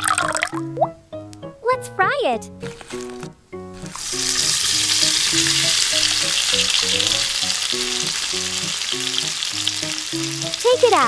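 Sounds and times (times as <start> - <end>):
light music: 0.0 - 11.0
chicken sizzling in hot oil: 3.8 - 11.0.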